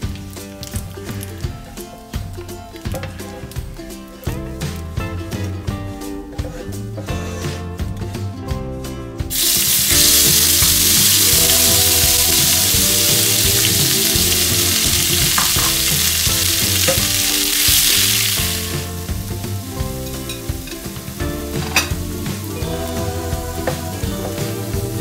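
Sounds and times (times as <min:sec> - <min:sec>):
paste sizzling in hot oil: 0:09.3 - 0:25.0.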